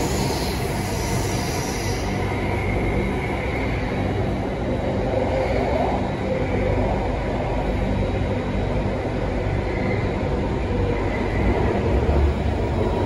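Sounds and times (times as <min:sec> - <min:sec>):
train running through tunnel: 0:00.0 - 0:13.0.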